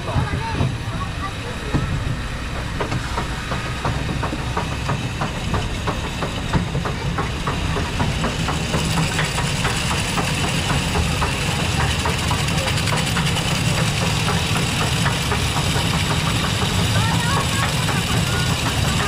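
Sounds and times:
low rumble of lift drive: 0:00.0 - 0:19.0
ratchet clicking rapidly: 0:02.6 - 0:19.0.

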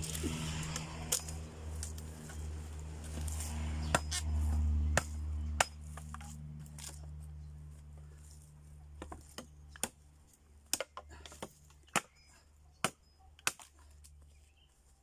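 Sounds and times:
knife chopping branches: 0:00.0 - 0:14.3.

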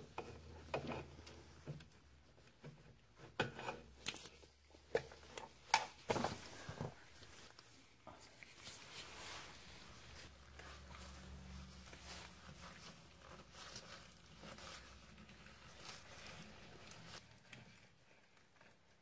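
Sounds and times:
rubber rubbing and rustling: 0:00.0 - 0:19.0.

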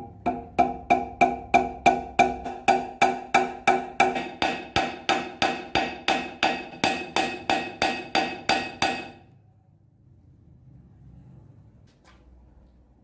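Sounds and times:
hammer striking metal rivet: 0:00.0 - 0:09.2.

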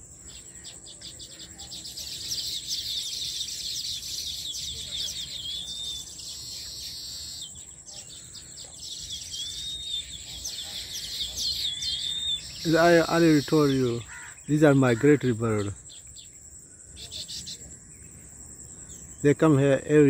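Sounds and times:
birds chattering: 0:00.0 - 0:20.0
upslurred bird whistle: 0:02.2 - 0:08.2.

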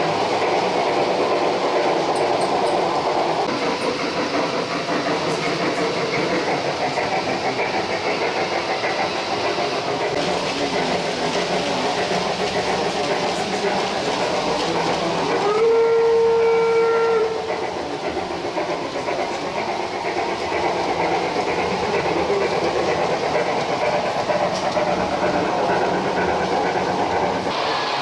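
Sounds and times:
model train running on track: 0:00.0 - 0:28.0
steam locomotive whistle: 0:15.3 - 0:17.6, 0:27.5 - 0:28.0.

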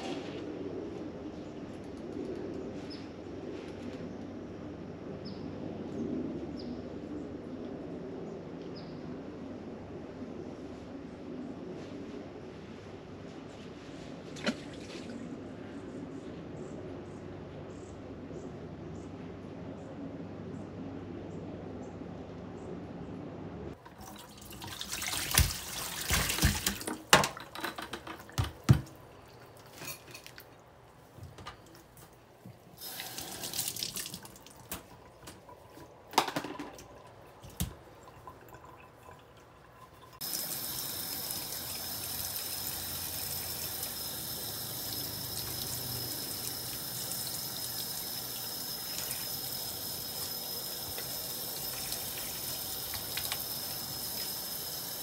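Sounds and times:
tap water splashing: 0:23.8 - 0:30.5, 0:32.9 - 0:40.4, 0:50.8 - 0:54.4.

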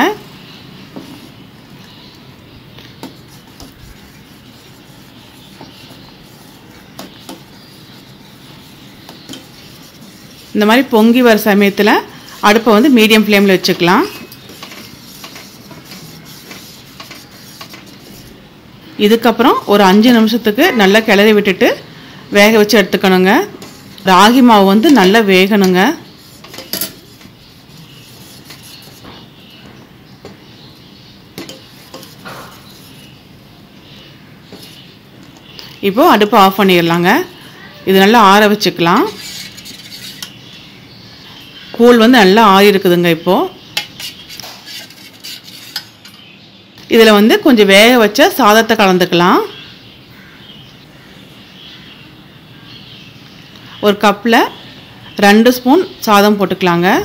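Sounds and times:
spoon stirring and scraping pot: 0:02.7 - 0:18.4, 0:23.4 - 0:29.6, 0:30.2 - 0:33.3, 0:34.4 - 0:35.8, 0:39.0 - 0:40.6, 0:43.6 - 0:46.3.

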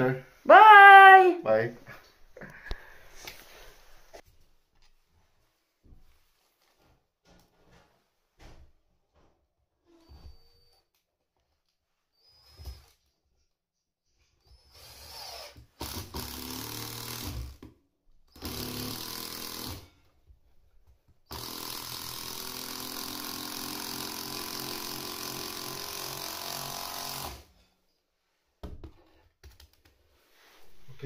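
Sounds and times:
cordless drill running: 0:14.7 - 0:17.6, 0:18.3 - 0:19.9, 0:21.3 - 0:27.5.

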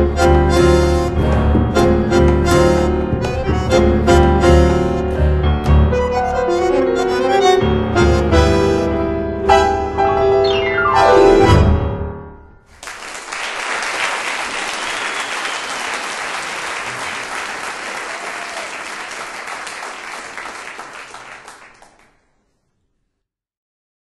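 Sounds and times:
piano run: 0:00.0 - 0:13.5
audience applauding: 0:12.7 - 0:22.3.

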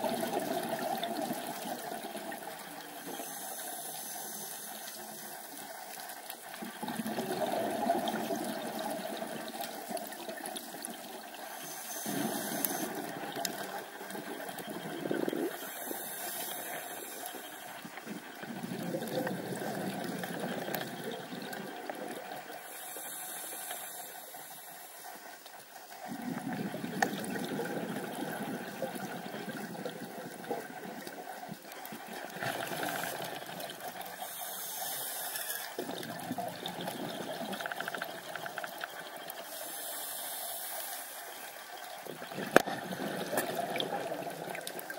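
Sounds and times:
exhaled air bubbling: 0:00.0 - 0:03.4, 0:05.4 - 0:35.0, 0:35.6 - 0:40.0, 0:41.3 - 0:44.9
regulator inhale hiss: 0:03.0 - 0:05.6, 0:11.5 - 0:13.3, 0:15.4 - 0:17.8, 0:22.5 - 0:25.5, 0:34.1 - 0:36.1, 0:39.4 - 0:41.5.

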